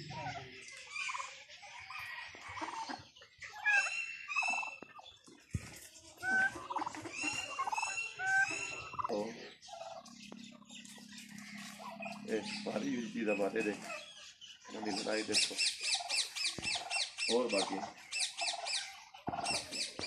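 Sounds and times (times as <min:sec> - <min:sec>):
turkeys gobbling: 0:00.0 - 0:05.1, 0:06.2 - 0:20.0.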